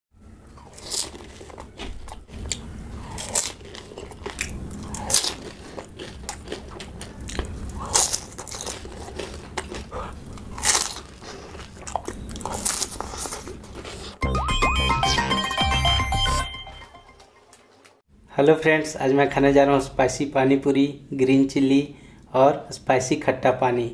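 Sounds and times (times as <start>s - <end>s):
crunching and chewing: 0.4s - 14.2s.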